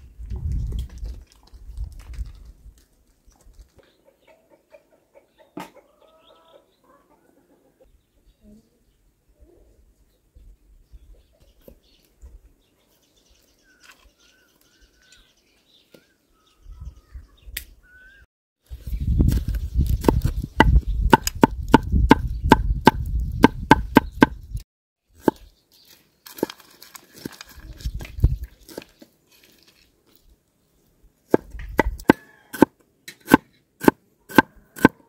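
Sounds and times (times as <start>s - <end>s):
cleaver chopping on wooden board: 31.3s - 32.7s, 33.3s - 35.0s.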